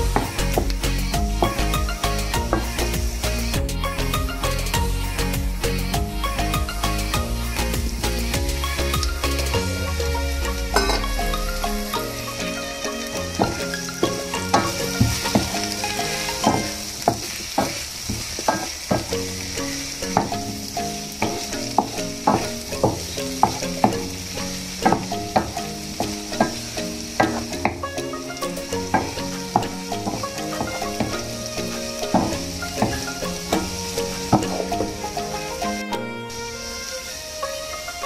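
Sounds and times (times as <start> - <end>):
potatoes sizzling: 0.0 - 38.0
wooden spoon scraping a pan: 12.0 - 20.6.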